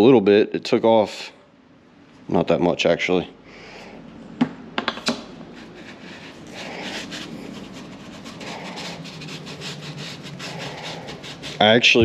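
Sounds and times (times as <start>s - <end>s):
pipe scraping on sandpaper: 5.5s - 12.0s.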